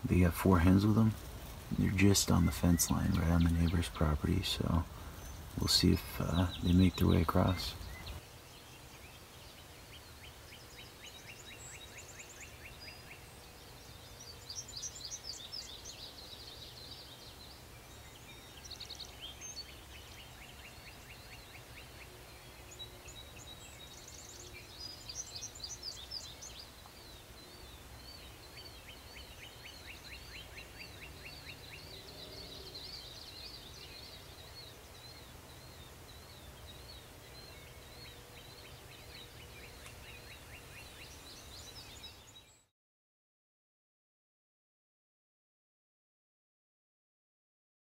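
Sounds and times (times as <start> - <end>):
bird warbling song: 0.0 - 42.7
songbirds trilling and chirping: 0.0 - 42.7.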